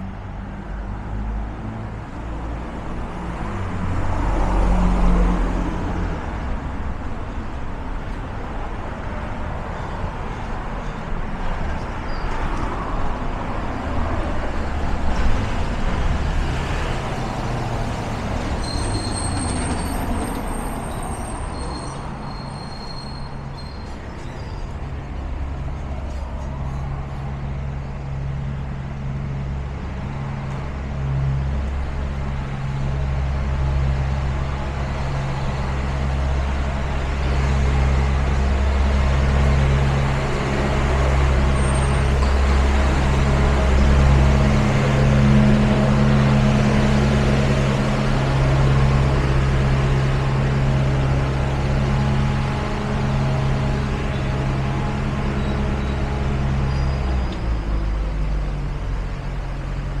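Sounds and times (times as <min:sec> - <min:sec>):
passing cars: 0:00.0 - 1:00.0
low engine drone: 0:24.6 - 1:00.0.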